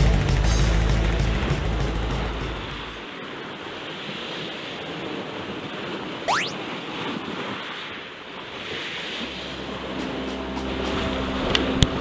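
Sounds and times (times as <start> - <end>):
surf on cobble beach: 2.6 - 10.0
sharp rising whistle: 6.3 - 6.6.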